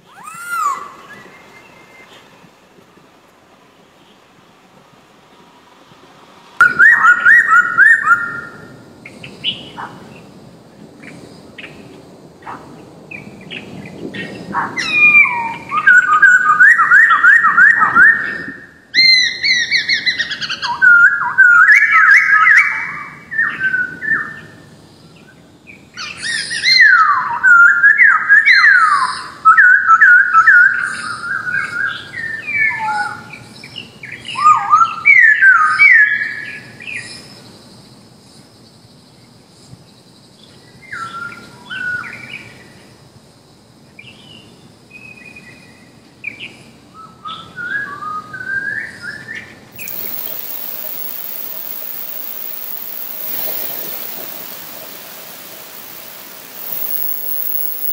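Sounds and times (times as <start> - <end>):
laughingthrush calling: 49.8 - 57.9.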